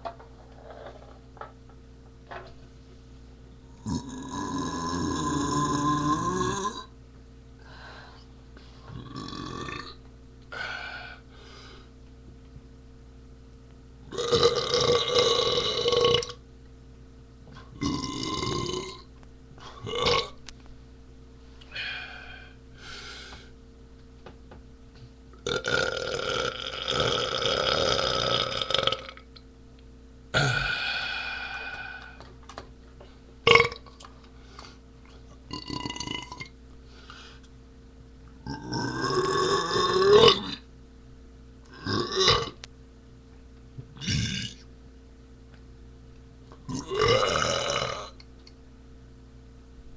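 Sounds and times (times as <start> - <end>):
man belching: 3.7 - 6.9, 9.0 - 10.0, 14.1 - 16.4, 17.8 - 19.1, 19.8 - 20.4, 25.4 - 29.2, 30.3 - 31.3, 33.5 - 33.9, 35.5 - 36.5, 38.4 - 40.6, 41.7 - 42.6, 44.0 - 44.6, 46.6 - 48.2.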